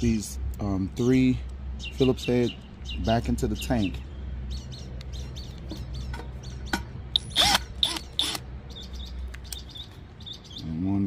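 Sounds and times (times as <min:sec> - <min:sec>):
birds chirping: 0:00.6 - 0:11.0
cordless drill humming: 0:07.2 - 0:08.4.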